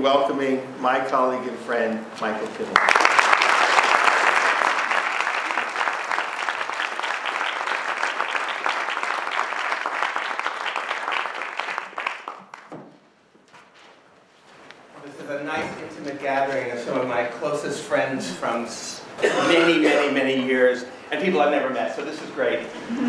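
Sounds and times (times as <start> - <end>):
audience applauding: 2.7 - 12.8.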